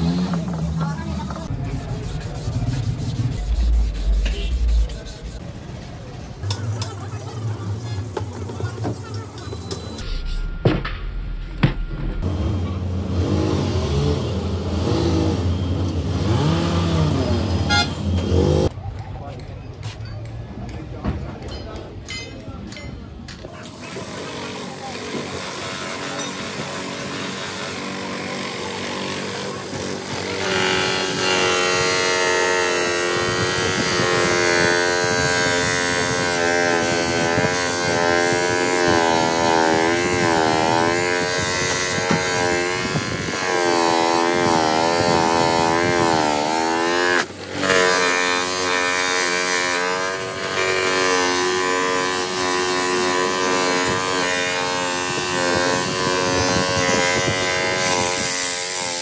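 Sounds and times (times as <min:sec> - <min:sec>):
polishing motor whine: 0:23.7 - 0:59.0.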